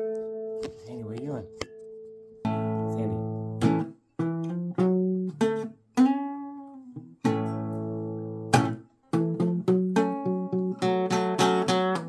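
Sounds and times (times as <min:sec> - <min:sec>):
blues guitar chords: 0:00.0 - 0:12.0.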